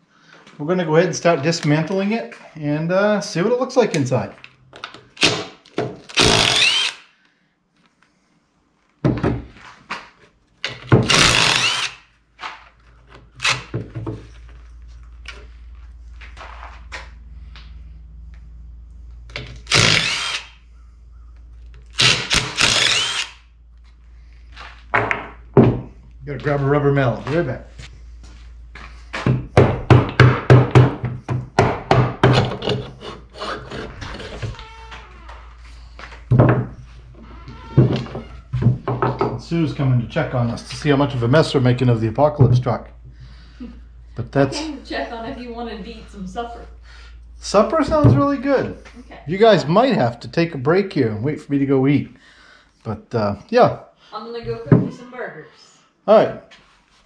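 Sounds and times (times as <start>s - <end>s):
power driver whirring: 6.1s - 7.1s, 11.0s - 12.0s, 19.3s - 20.6s, 21.9s - 23.4s
faint low hum: 12.5s - 53.2s.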